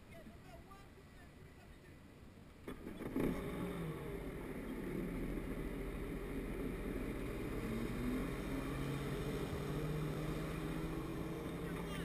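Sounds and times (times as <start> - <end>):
watercraft engine running: 3.0 - 12.0.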